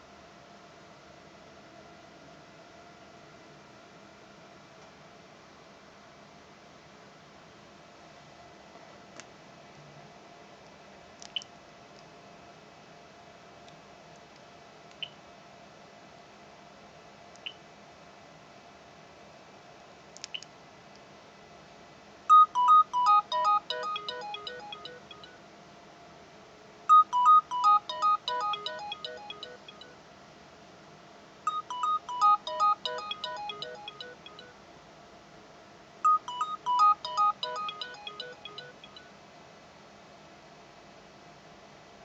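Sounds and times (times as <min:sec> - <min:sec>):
phone ringing with melodic ringtone: 0:22.3 - 0:25.4, 0:26.9 - 0:30.0, 0:31.5 - 0:34.6, 0:36.1 - 0:39.1.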